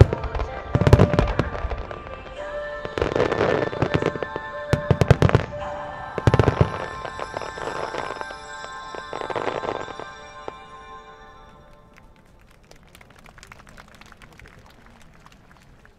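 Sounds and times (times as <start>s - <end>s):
music accompanying fireworks: 0.0s - 10.8s.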